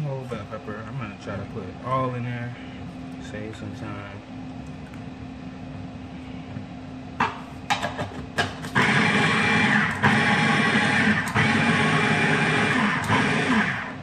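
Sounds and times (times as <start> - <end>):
food chopper motor chopping: 7.7 - 14.0.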